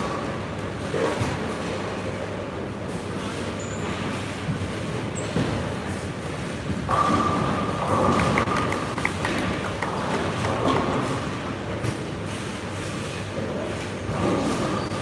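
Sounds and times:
bowling balls rolling: 0:06.8 - 0:11.8.

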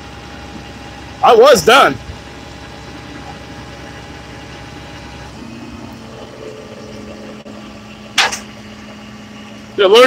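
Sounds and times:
truck engine idling: 0:00.0 - 0:10.0
steady tone: 0:04.6 - 0:09.8.

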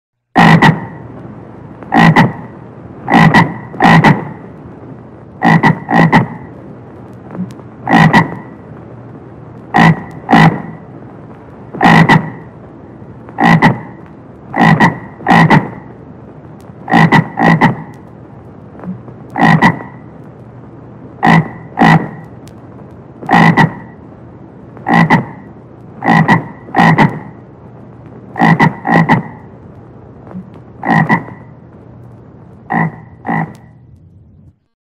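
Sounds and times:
faint steady hiss: 0:00.2 - 0:34.8
frog croaking: 0:00.4 - 0:01.0, 0:01.9 - 0:04.5, 0:05.4 - 0:06.6, 0:07.4 - 0:08.7, 0:09.7 - 0:10.9, 0:11.8 - 0:12.6, 0:13.3 - 0:16.0, 0:16.8 - 0:18.1, 0:18.8 - 0:20.2, 0:21.2 - 0:22.4, 0:23.2 - 0:24.0, 0:24.8 - 0:27.5, 0:28.3 - 0:29.6, 0:30.3 - 0:31.6, 0:32.6 - 0:33.8.

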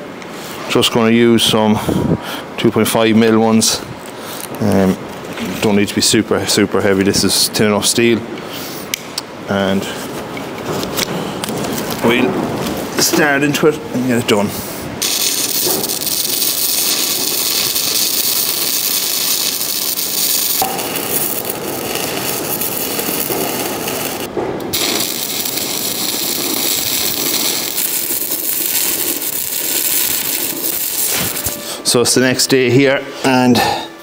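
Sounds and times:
arc welder crackling hiss: 0:08.5 - 0:32.6.

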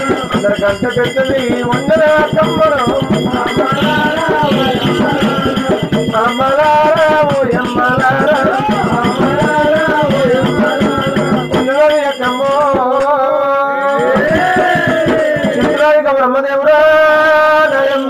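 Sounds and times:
fast drumming: 0:00.0 - 0:13.2, 0:13.9 - 0:16.1
jingling percussion: 0:00.0 - 0:16.2
person singing long wavering notes: 0:01.6 - 0:06.5.

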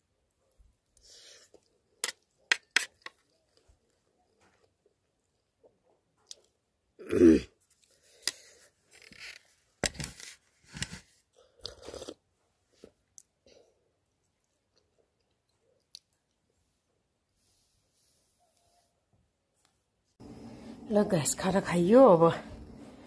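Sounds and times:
throaty vocal sound: 0:07.0 - 0:07.5
sipping and slurping from mug: 0:11.5 - 0:12.2.

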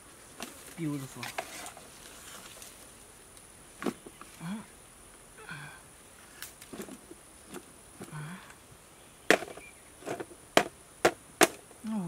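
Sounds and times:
digging tool striking soil: 0:09.3 - 0:11.6.

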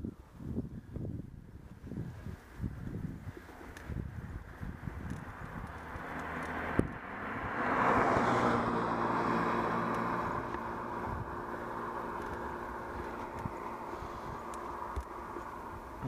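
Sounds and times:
steady engine hum: 0:00.0 - 0:16.0
vehicle passing by: 0:04.7 - 0:16.0.

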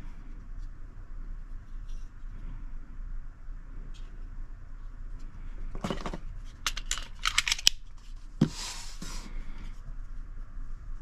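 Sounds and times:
sharp metal and polymer clicks: 0:06.6 - 0:07.8.

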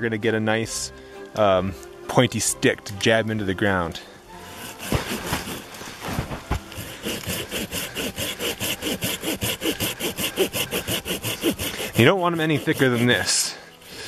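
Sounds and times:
saw rasping through wood: 0:04.3 - 0:14.0.

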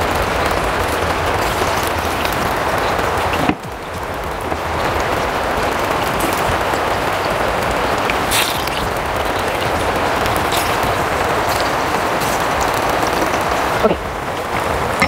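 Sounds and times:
plantains sizzling in hot oil: 0:00.0 - 0:15.0
oil spattering: 0:04.4 - 0:13.1.

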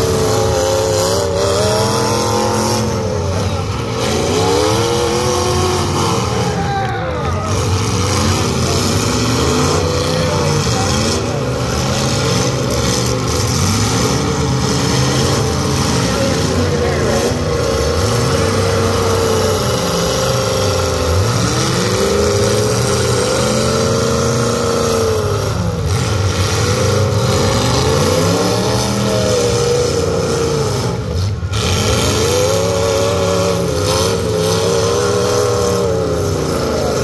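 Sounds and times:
car engines revving hard: 0:00.0 - 0:37.0
constant engine din: 0:00.0 - 0:37.0.

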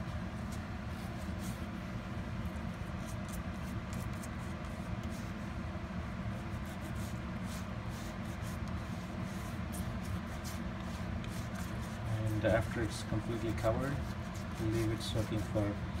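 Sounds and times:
steady low hum: 0:00.0 - 0:16.0
toothbrush scratching on metal mesh: 0:09.6 - 0:16.0.

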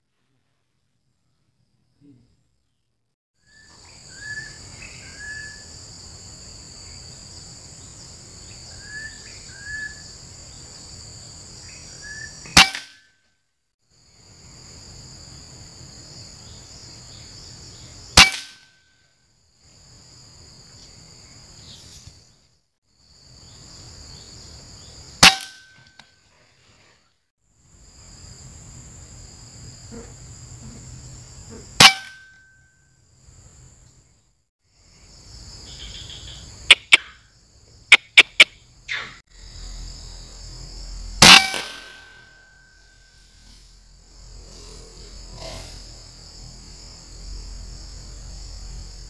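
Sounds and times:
insects droning: 0:00.3 - 0:13.1, 0:13.8 - 0:49.0
insect chirps: 0:00.3 - 0:49.0
rifle shots: 0:41.2 - 0:42.3.

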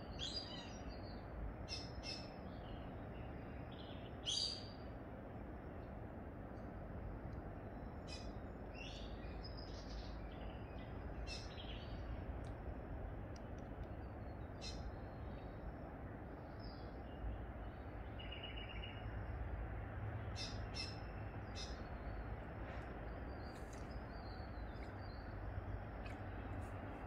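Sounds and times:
low background rumble: 0:00.0 - 0:27.0
small birds chirping: 0:07.7 - 0:19.4, 0:20.2 - 0:27.0.

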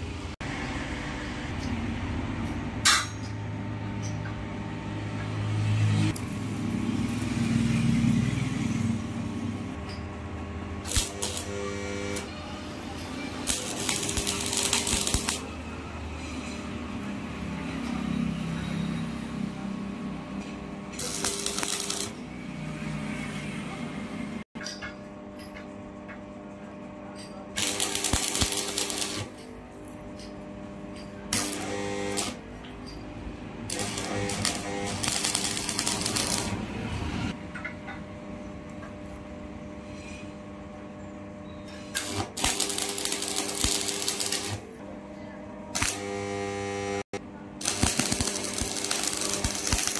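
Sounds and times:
welding arc crackling: 0:10.8 - 0:15.5, 0:21.0 - 0:22.2, 0:27.6 - 0:29.4, 0:31.3 - 0:32.4, 0:33.6 - 0:37.1, 0:42.0 - 0:44.6, 0:45.8 - 0:49.9.

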